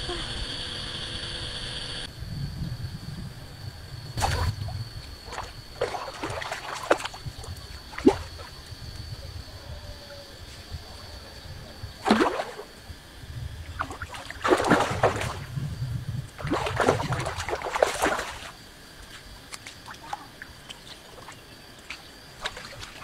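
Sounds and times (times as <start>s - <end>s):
fish splashing in water: 4.2s - 8.8s, 12.0s - 12.8s, 13.6s - 15.6s, 16.3s - 18.7s, 19.5s - 23.0s.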